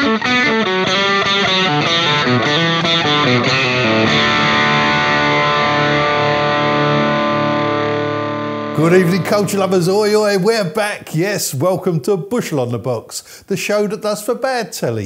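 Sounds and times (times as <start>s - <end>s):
distorted electric guitar: 0.0s - 10.4s.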